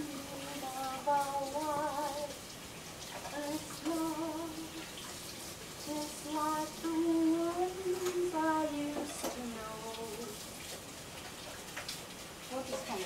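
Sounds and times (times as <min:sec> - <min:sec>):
woman singing: 0:00.0 - 0:02.4, 0:03.3 - 0:04.9, 0:05.8 - 0:10.4
tap running into sink: 0:07.9 - 0:12.0.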